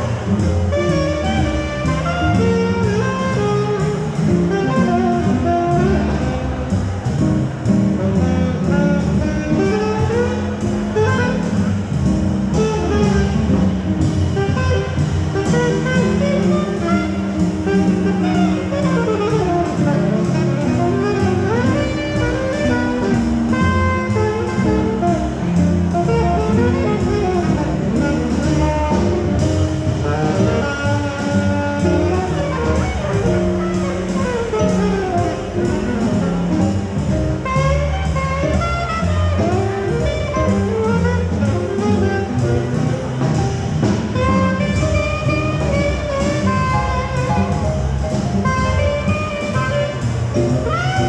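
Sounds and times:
jazz music: 0.0 - 51.0.

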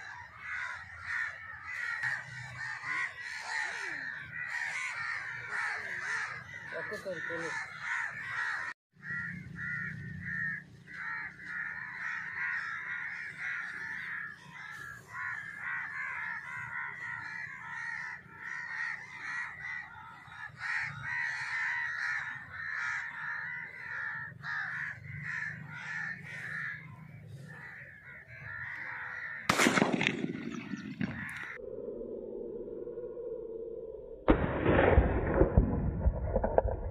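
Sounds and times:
crows cawing: 0.0 - 31.6
sharp bang: 34.3 - 36.8.

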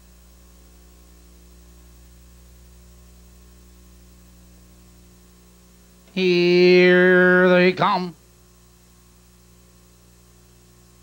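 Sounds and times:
faint electrical hum: 0.0 - 11.0
low hiss: 6.1 - 8.2.

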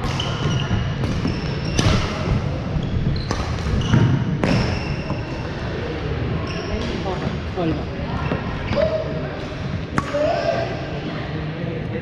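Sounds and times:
sneakers squeaking on wooden floor: 0.1 - 5.6, 6.4 - 7.4.

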